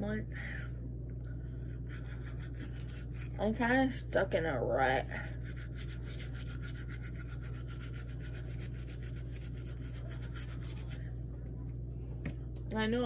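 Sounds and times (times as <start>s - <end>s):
steady low hum: 0.0s - 13.0s
toothbrush scrubbing teeth: 1.8s - 3.5s, 5.1s - 11.1s.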